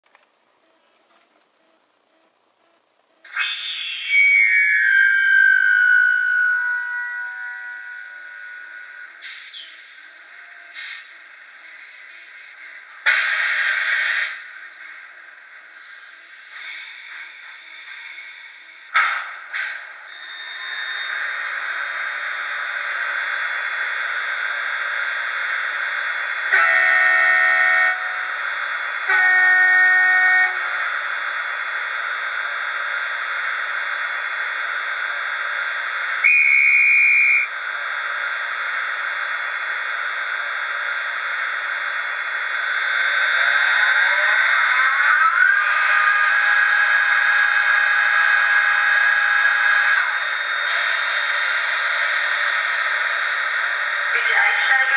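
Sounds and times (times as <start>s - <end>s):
high whistle: 3.3s - 10.2s, 20.1s - 21.3s, 36.2s - 37.5s
rising electronic tones: 3.5s - 9.2s
model train running hiss: 9.2s - 19.8s
train horn blasts: 26.5s - 28.3s, 29.1s - 30.8s.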